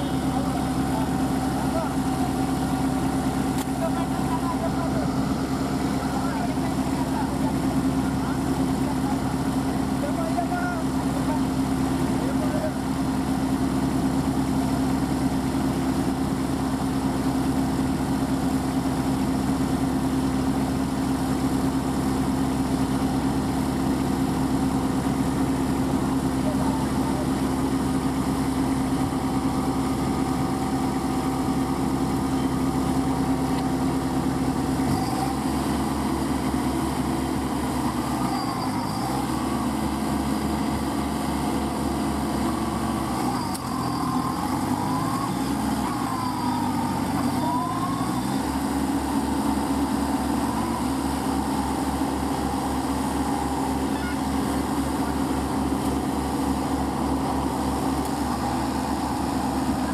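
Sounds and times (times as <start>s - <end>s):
tractor diesel engines revving: 21.3s - 59.9s.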